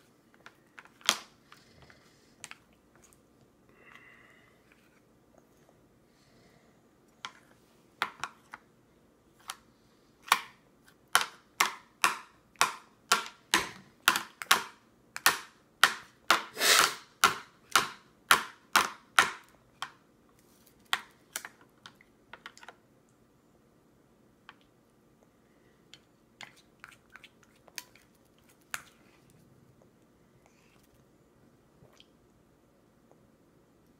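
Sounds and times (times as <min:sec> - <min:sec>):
plastic spoon tapping on plastic: 0:10.2 - 0:16.5, 0:17.2 - 0:20.0.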